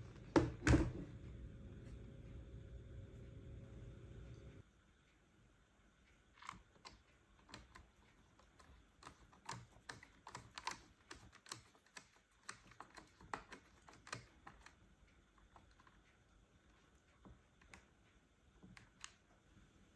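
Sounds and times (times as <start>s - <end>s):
low hum: 1.0s - 5.2s.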